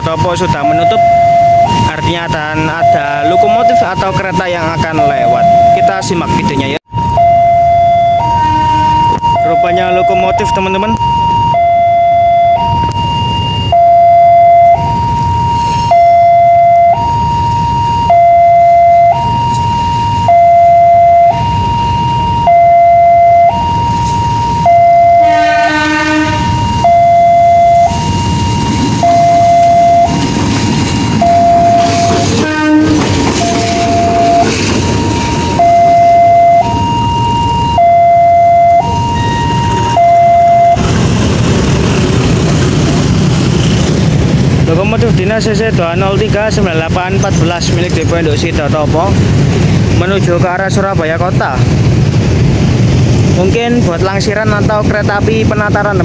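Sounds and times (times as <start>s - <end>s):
level crossing two-tone alarm: 0.0s - 30.5s, 31.1s - 40.8s
locomotive engine rumble: 0.0s - 56.0s
train horn: 8.2s - 9.2s, 25.0s - 27.1s, 31.4s - 34.5s.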